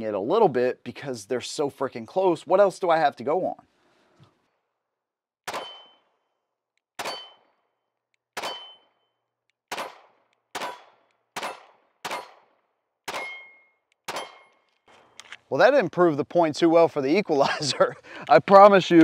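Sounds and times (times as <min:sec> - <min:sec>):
pistol shots: 0:05.4 - 0:06.2, 0:07.0 - 0:07.6, 0:08.4 - 0:09.0, 0:09.7 - 0:15.1
steel target ringing: 0:05.5 - 0:06.1, 0:07.0 - 0:07.6, 0:08.4 - 0:09.0, 0:13.1 - 0:14.5.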